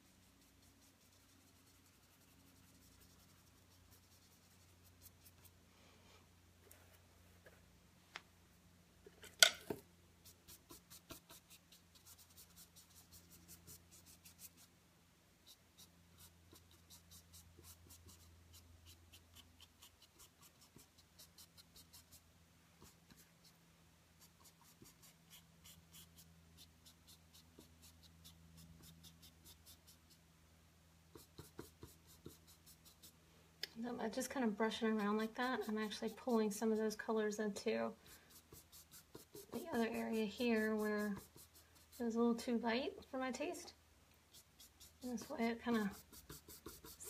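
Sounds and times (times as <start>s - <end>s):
bristle brush scratching: 0.0s - 5.6s, 10.2s - 14.7s, 15.4s - 23.6s, 24.2s - 30.2s, 31.2s - 33.2s, 34.1s - 37.4s, 38.0s - 42.5s, 44.3s - 47.0s
faint low hum: 0.0s - 47.0s.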